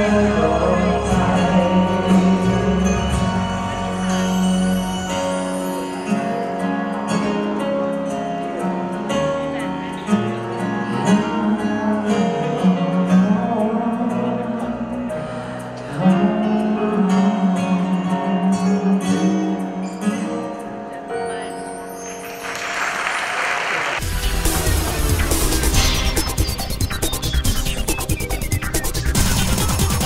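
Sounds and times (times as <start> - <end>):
man singing sustained notes: 0.0 - 4.7
guitar accompaniment: 0.0 - 23.2, 24.0 - 30.0
audience applause: 22.2 - 25.6.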